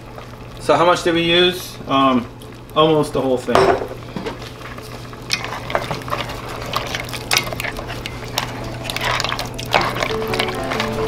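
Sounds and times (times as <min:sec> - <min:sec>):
spoon stirring in metal pot: 0:04.6 - 0:11.0.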